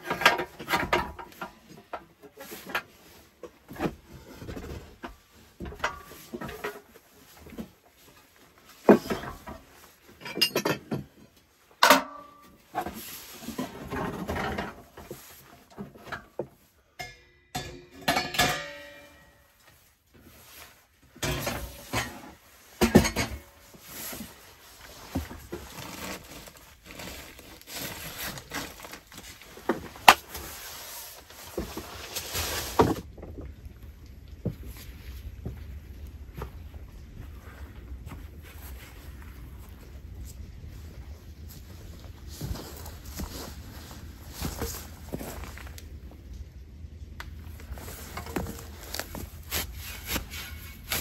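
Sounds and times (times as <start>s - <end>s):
metal clanks and scrapes: 0.0s - 7.7s, 8.8s - 16.4s, 17.0s - 33.1s, 47.8s - 51.0s
metallic ringing: 17.0s - 19.4s.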